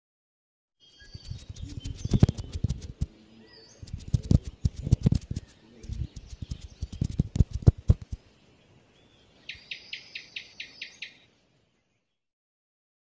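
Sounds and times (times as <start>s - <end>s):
fast trill of high chirps: 0.8s - 3.1s, 3.8s - 8.2s
skittering taps of little feet: 1.0s - 3.1s, 3.8s - 8.2s.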